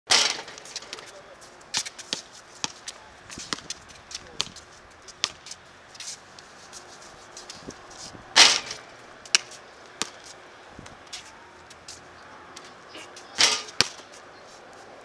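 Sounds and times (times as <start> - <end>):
loud bangs: 8.4 - 8.9
knocks and slaps on court: 8.4 - 10.3, 13.4 - 14.1.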